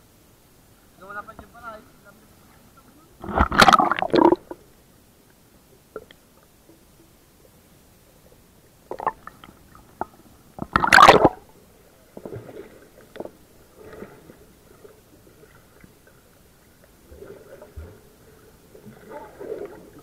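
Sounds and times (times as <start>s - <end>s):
muffled underwater water noise: 0.0s - 20.0s
water sloshing: 3.2s - 4.6s, 8.9s - 11.5s, 12.1s - 20.0s.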